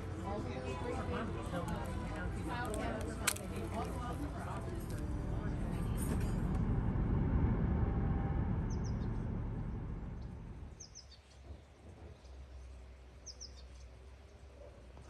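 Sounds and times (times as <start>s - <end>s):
low rushing noise: 0.0s - 11.2s
small birds chirping: 10.2s - 14.4s.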